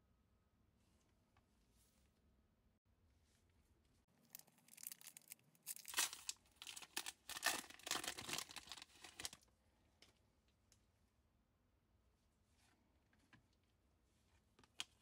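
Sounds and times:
foil wrapper tearing: 0:04.3 - 0:09.4.

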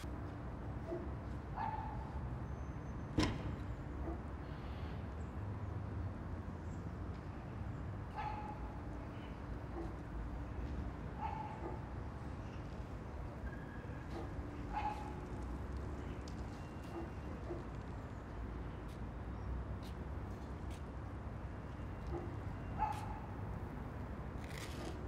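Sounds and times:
dog barking: 0:00.8 - 0:02.2, 0:04.0 - 0:04.3, 0:08.1 - 0:08.8, 0:09.7 - 0:10.0, 0:11.2 - 0:11.9, 0:14.1 - 0:15.2, 0:16.8 - 0:17.7, 0:22.1 - 0:23.4.

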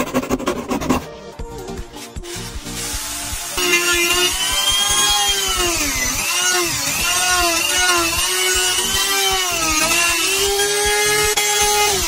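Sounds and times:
rotary tool motor whining: 0:02.8 - 0:12.0.

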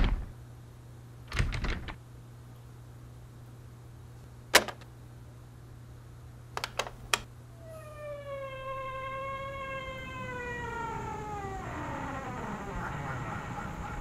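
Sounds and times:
deadbolt lock clicking: 0:06.6 - 0:07.3.

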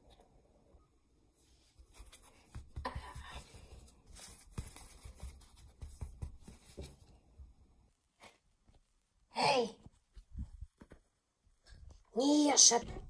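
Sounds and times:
plush toys knocking and rubbing: 0:01.8 - 0:07.6.

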